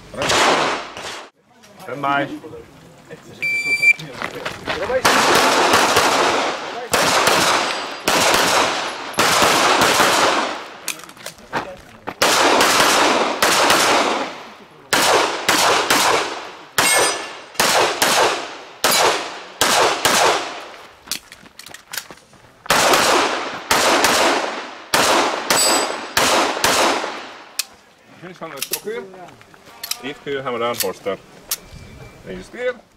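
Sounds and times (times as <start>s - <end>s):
handgun shots echoing: 12.2s - 20.6s, 22.7s - 27.7s.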